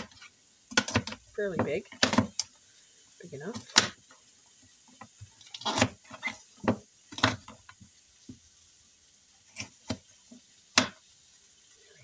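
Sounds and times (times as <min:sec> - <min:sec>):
knife chopping on wooden board: 0:00.0 - 0:02.4, 0:05.6 - 0:07.5.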